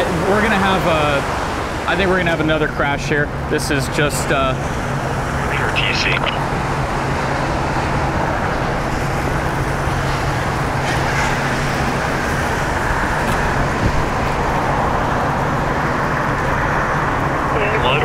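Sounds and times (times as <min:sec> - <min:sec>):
cars passing at speed: 0:04.3 - 0:18.0.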